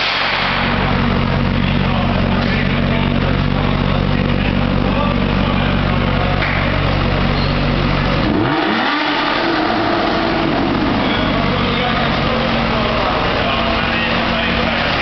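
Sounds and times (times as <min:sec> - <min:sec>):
sports car engines idling: 0:00.0 - 0:15.0
engine revving sharply: 0:05.4 - 0:15.0.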